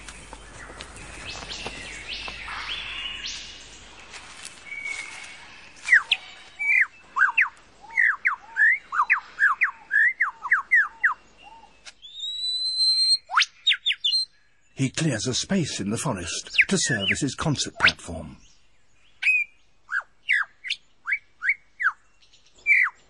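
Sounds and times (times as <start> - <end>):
forest background noise: 0.0 - 23.0
lyrebird whistling: 5.9 - 14.3, 19.2 - 22.0.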